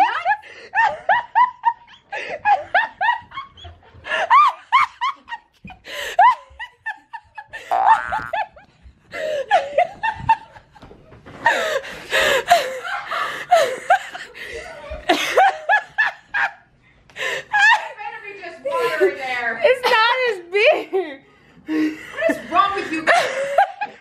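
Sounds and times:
person giggling: 3.5s - 8.6s.

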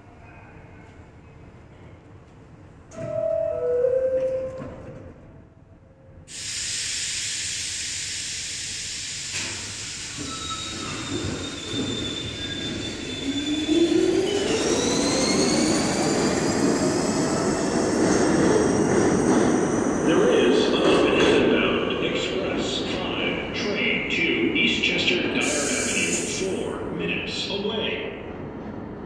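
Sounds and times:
air brakes hissing: 6.3s - 13.3s, 25.4s - 26.6s.

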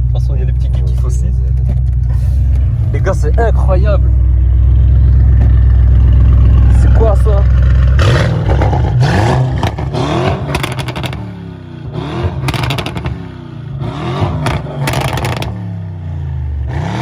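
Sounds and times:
car engine revving: 0.0s - 17.0s
exhaust crackling pops: 7.6s - 11.2s, 12.4s - 13.2s, 14.4s - 15.6s.

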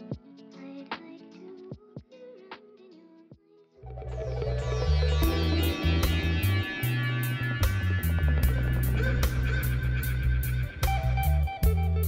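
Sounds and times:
plucked string melody: 3.8s - 12.0s.

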